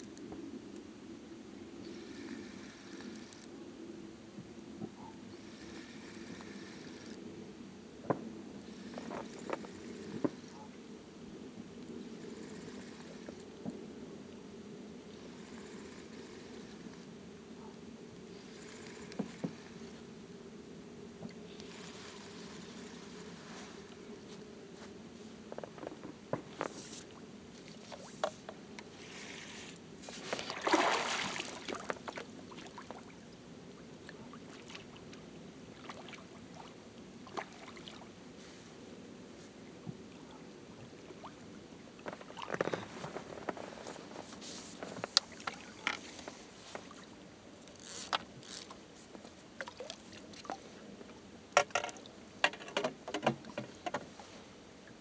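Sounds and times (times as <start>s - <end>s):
fishing reel winding: 5.7s - 7.2s, 47.7s - 48.8s
fish splashing: 30.2s - 33.0s
clicks and knocks of tackle: 51.6s - 54.1s.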